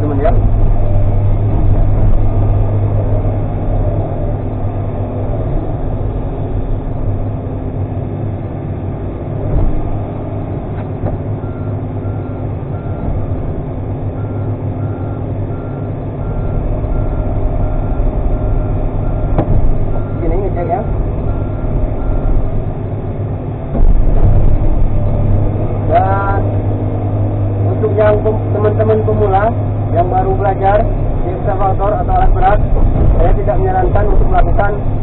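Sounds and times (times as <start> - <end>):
excavator diesel engine running: 0.0 - 35.0
excavator travel alarm beeping: 11.4 - 13.4, 14.1 - 22.4.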